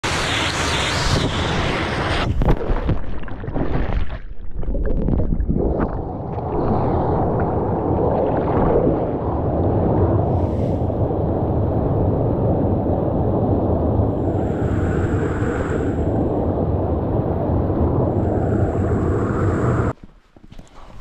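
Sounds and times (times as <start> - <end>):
wind buffeting microphone: 5.6 - 20.0
rushing water hiss: 14.1 - 16.2.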